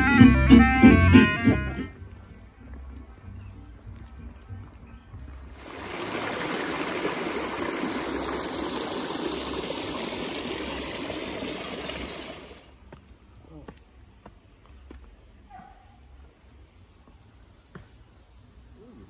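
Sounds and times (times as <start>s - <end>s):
stream flowing over stones: 5.4s - 12.7s.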